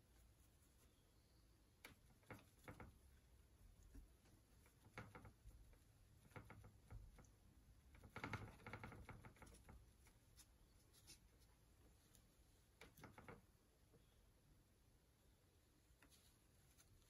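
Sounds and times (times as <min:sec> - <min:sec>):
paintbrush scratching on panel: 0:01.8 - 0:13.2, 0:16.0 - 0:17.0.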